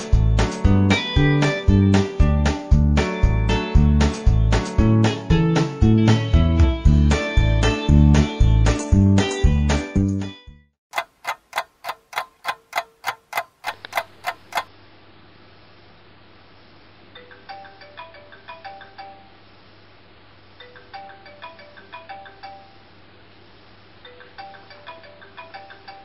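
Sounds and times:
clock ticking: 0:10.9 - 0:14.7.

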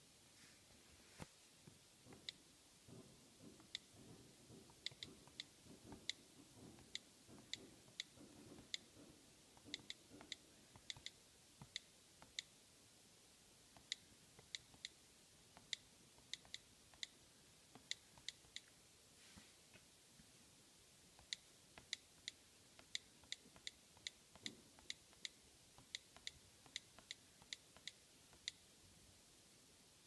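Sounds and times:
faint handling rustle: 0:00.3 - 0:01.6, 0:19.1 - 0:20.3
on-screen keyboard clicks: 0:03.6 - 0:04.0, 0:04.7 - 0:06.2, 0:09.6 - 0:12.5, 0:13.8 - 0:15.0, 0:15.6 - 0:18.7, 0:21.2 - 0:28.6.

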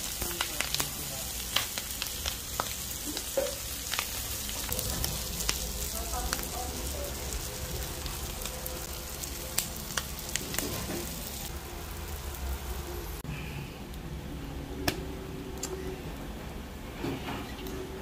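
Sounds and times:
food sizzling on hot plate: 0:00.0 - 0:13.2.

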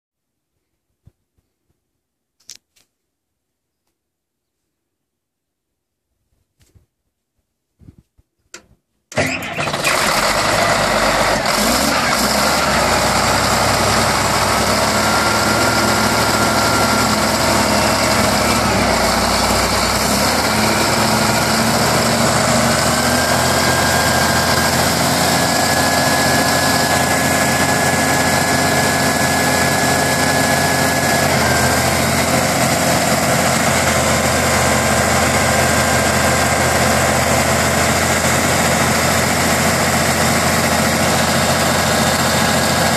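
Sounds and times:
diesel engine starting and idling: 0:09.1 - 0:42.9.

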